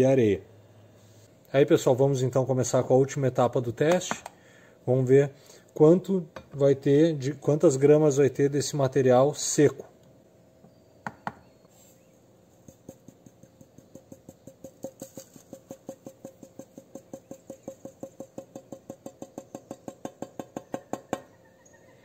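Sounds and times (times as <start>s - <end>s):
sand ticking into metal cup: 12.6s - 20.8s.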